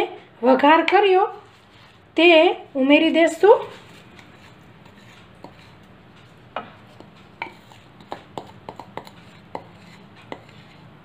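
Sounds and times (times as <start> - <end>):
spatula tapping glass bowl: 6.5 - 10.7.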